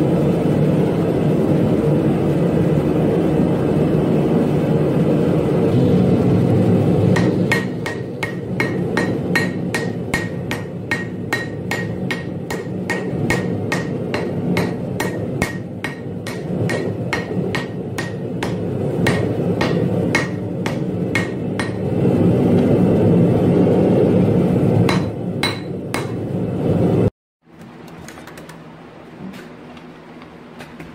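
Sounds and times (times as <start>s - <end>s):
forge roaring: 0.0s - 27.1s
hammer striking metal on anvil: 7.1s - 22.0s, 24.9s - 26.3s.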